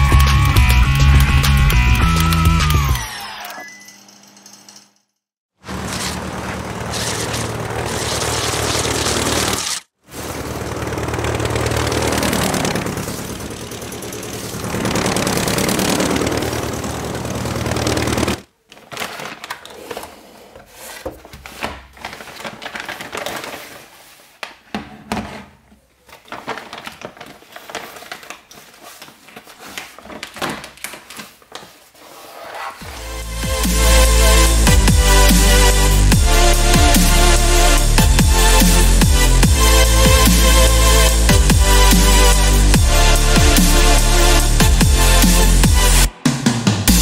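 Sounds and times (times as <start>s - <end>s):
small motor running loudly: 5.7s - 18.4s.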